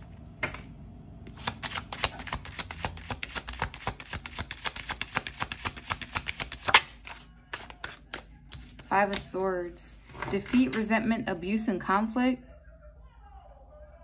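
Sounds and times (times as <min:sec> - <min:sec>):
cards being shuffled: 0:01.3 - 0:09.4.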